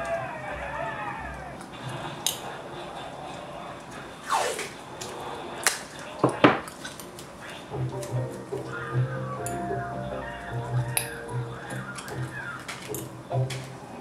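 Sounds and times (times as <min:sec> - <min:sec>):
falling swish: 0:04.2 - 0:04.8
background music: 0:07.7 - 0:14.0
small parts clicking and knocking: 0:11.9 - 0:13.8.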